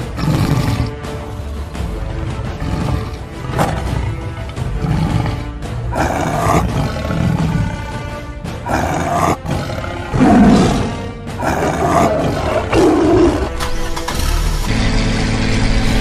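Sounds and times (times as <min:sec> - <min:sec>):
big cat roars: 0:00.0 - 0:01.0, 0:02.4 - 0:13.6
background music: 0:00.0 - 0:16.0.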